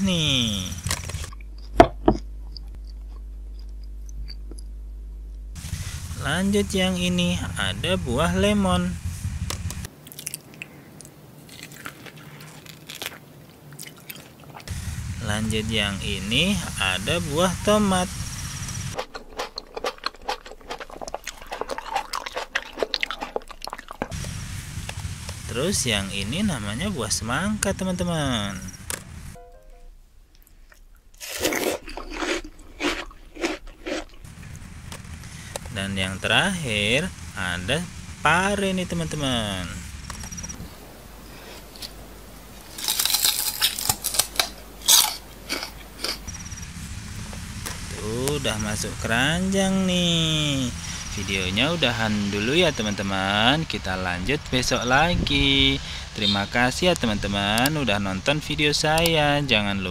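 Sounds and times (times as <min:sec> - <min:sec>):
chewing crunches: 0:00.8 - 0:04.7, 0:09.9 - 0:14.7, 0:19.0 - 0:24.3, 0:30.4 - 0:35.8, 0:42.6 - 0:46.5.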